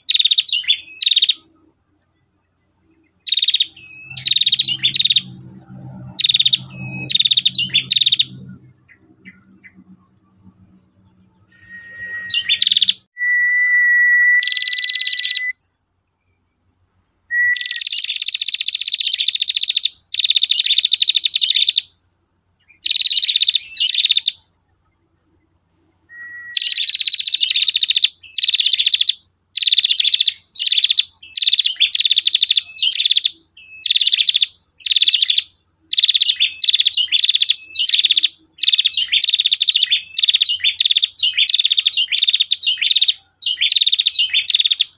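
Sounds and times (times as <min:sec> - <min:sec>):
prinia buzzy rapid calls: 0:00.0 - 0:01.6, 0:03.0 - 0:13.1, 0:17.6 - 0:21.9, 0:22.8 - 0:24.4, 0:26.4 - 0:44.9
brief steady bird whistle: 0:11.5 - 0:15.6, 0:17.3 - 0:19.8, 0:26.1 - 0:34.4.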